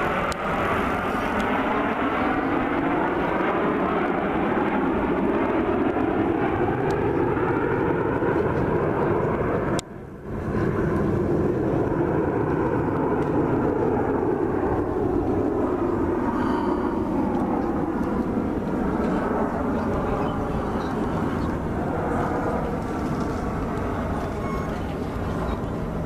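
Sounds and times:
jets flying overhead: 0:00.0 - 0:26.0.

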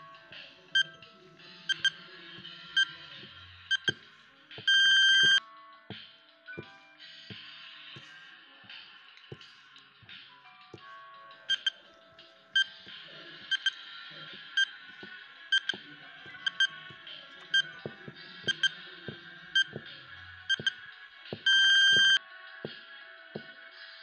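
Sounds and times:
background music: 0:00.0 - 0:24.0
countdown timer beeping: 0:01.7 - 0:02.0, 0:03.7 - 0:04.0, 0:04.6 - 0:05.4, 0:11.5 - 0:11.8, 0:13.5 - 0:13.8, 0:15.5 - 0:18.8, 0:19.6 - 0:19.9, 0:20.5 - 0:20.8, 0:21.4 - 0:22.2
long loud beep: 0:21.5 - 0:22.2.

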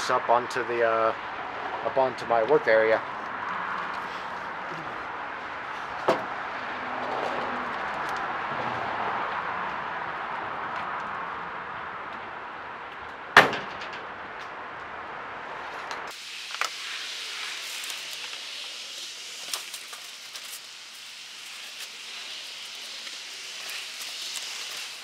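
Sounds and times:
steady hiss: 0:16.0 - 0:25.0.

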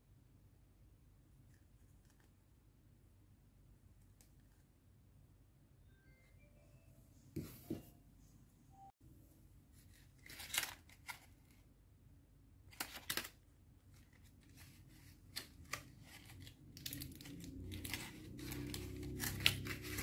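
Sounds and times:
plastic packaging crinkling: 0:10.0 - 0:11.6, 0:12.7 - 0:20.0.

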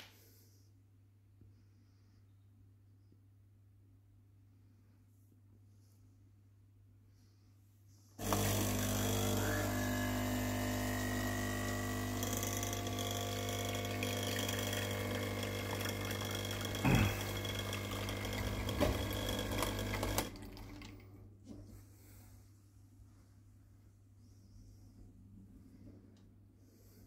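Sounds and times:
espresso machine pump buzzing: 0:08.2 - 0:20.9
espresso pouring into cup: 0:08.2 - 0:21.0.

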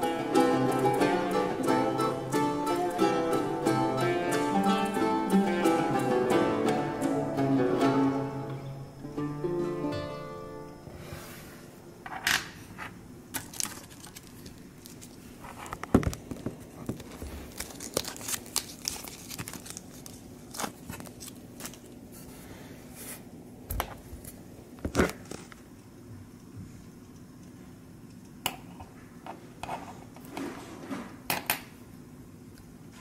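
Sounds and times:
plastic sleeve crinkling: 0:13.3 - 0:22.2.

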